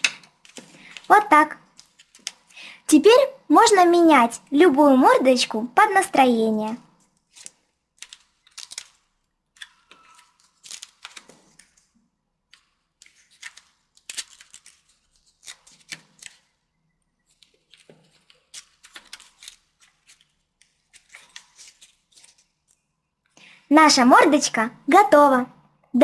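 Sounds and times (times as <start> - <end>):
paper rustling and flicking: 0.0 - 2.7, 6.7 - 16.6, 17.2 - 22.8.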